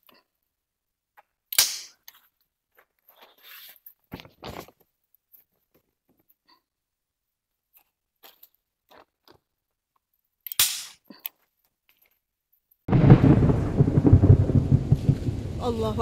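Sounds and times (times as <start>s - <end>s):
sharp crackle: 1.5s - 2.3s, 12.9s - 16.0s
faint clicks and rustles: 2.0s - 6.7s, 11.0s - 12.9s
heavy rain: 12.9s - 16.0s
thunder rumbling: 12.9s - 16.0s.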